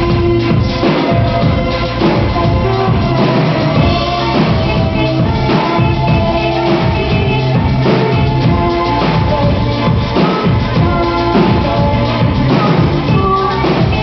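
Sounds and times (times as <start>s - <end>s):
bass line: 0.0s - 14.0s
drum kit beat: 0.0s - 14.0s.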